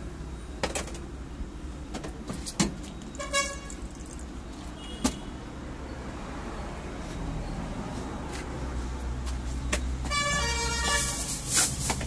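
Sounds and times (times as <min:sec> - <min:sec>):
road traffic rumble: 0:00.0 - 0:12.0
vehicle horn toot: 0:03.2 - 0:03.8, 0:04.8 - 0:05.4, 0:10.0 - 0:11.3.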